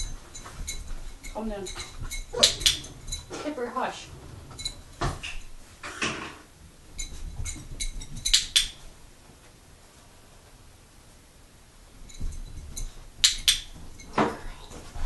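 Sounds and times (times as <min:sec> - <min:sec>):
dog nails clicking on bowl: 0:00.4 - 0:03.3, 0:07.8 - 0:08.8, 0:13.2 - 0:13.7.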